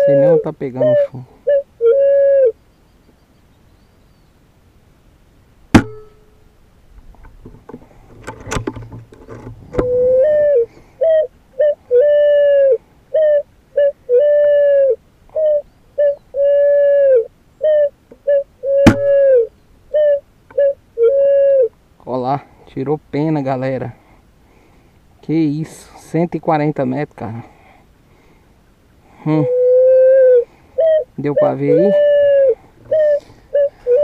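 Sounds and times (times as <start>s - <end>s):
pulsing whistling tone: 9.8s - 11.2s.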